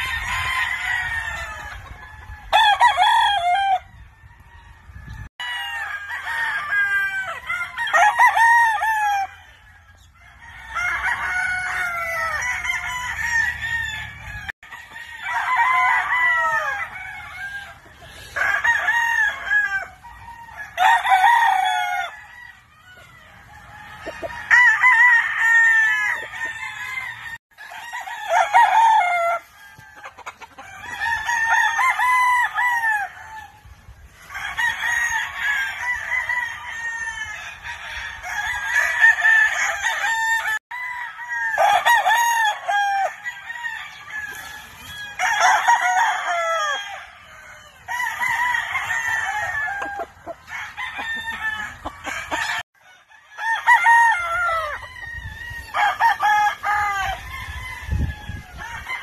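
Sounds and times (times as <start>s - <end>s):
roosters crowing: 0.0s - 59.0s.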